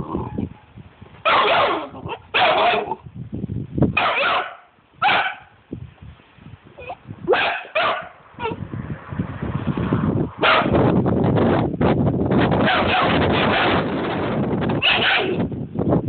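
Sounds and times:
puppy barking: 1.2s - 3.0s, 4.0s - 5.5s, 6.8s - 8.6s, 10.4s - 10.8s, 12.6s - 13.8s, 14.8s - 15.4s.

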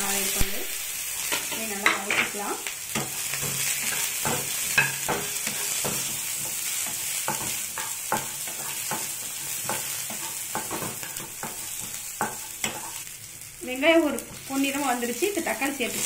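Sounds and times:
food sizzling in butter: 0.0s - 16.0s
spatula scraping and knocking pan: 1.2s - 13.0s.

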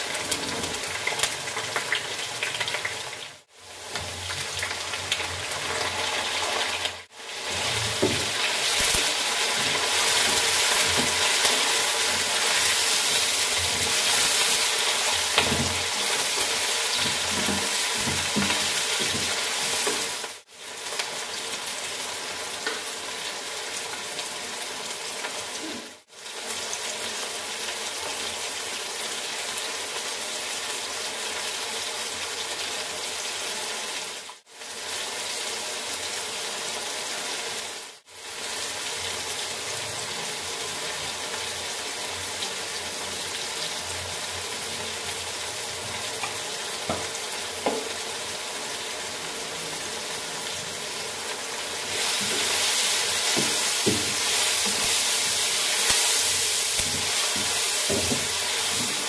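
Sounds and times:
vegetables sizzling in oil: 0.0s - 59.0s
spatula stirring: 51.8s - 59.0s.

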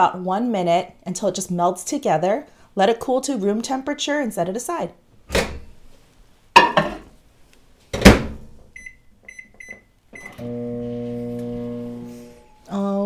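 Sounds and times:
microwave door thumping shut: 8.0s - 8.4s
short keypad beeps: 8.8s - 10.4s
microwave oven humming: 10.2s - 12.7s.

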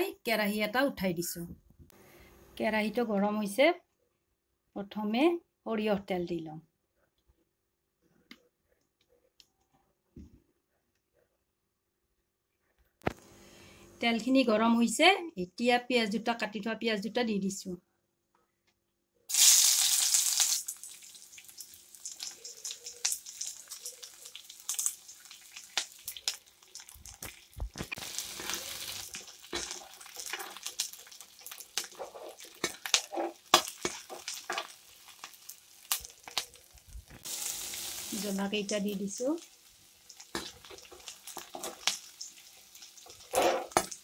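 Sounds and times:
onions sizzling in hot oil: 19.3s - 44.0s
steel spoon scraping pan: 31.8s - 34.4s, 43.0s - 43.9s.

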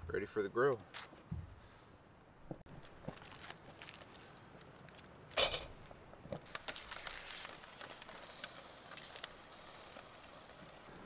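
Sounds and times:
faint clicks and crackles: 2.7s - 10.9s
aluminium foil crinkling: 2.8s - 10.9s
low hiss: 4.1s - 11.0s.

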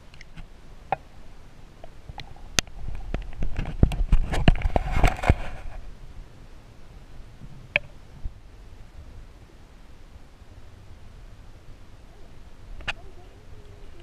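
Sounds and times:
sharp underwater clicks and knocks: 1.8s - 5.6s.

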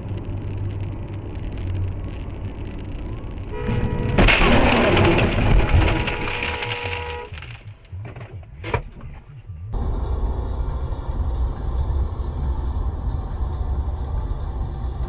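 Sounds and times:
crunching noise: 0.0s - 8.1s
road rumble: 0.0s - 15.0s
loud crash: 3.6s - 7.6s
car horn held: 5.8s - 7.4s.

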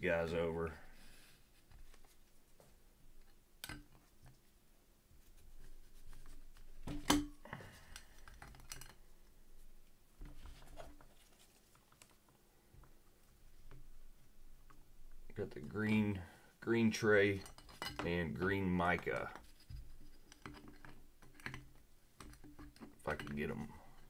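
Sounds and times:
cards rustling on table: 10.2s - 12.4s.

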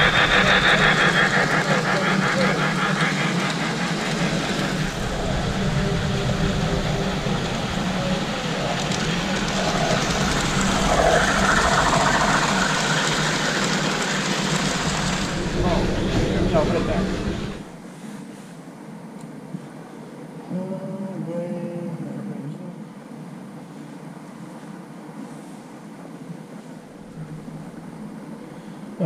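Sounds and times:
train wheels clattering on rails: 0.0s - 17.8s
steady low hum: 0.0s - 29.0s.

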